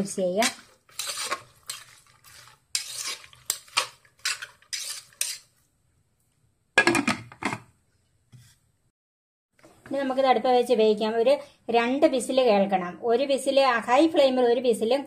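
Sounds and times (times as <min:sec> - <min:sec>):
metal spoon scraping a pot: 0:00.3 - 0:05.6.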